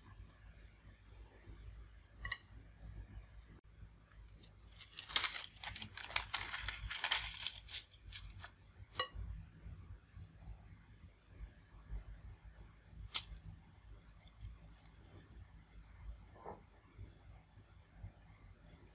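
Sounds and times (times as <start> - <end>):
parchment paper crinkling: 4.4 - 8.6.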